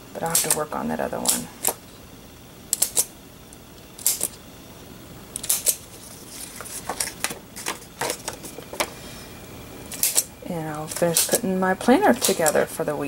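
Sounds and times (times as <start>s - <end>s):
paper punch clicking: 2.7s - 3.1s.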